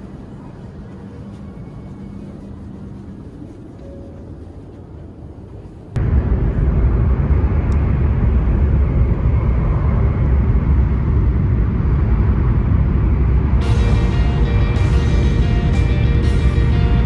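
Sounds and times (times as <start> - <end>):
train cabin noise: 0.0 - 6.6, 13.6 - 17.0
train running low rumble: 0.0 - 17.0.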